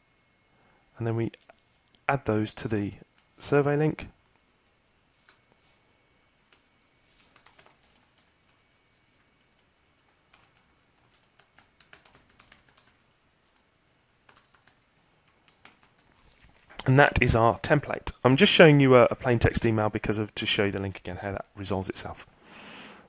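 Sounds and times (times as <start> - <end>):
computer keyboard typing: 6.5 - 16.4.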